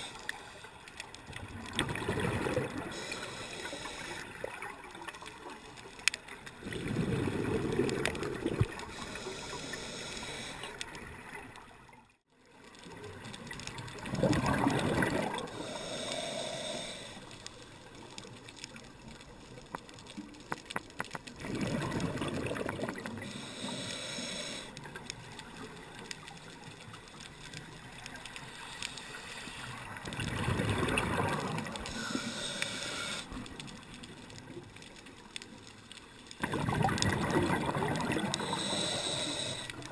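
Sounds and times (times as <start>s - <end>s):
exhaled bubbles underwater: 1.3s - 3.1s, 6.6s - 9.7s, 12.8s - 16.0s, 21.3s - 23.6s, 29.8s - 32.1s, 36.3s - 39.9s.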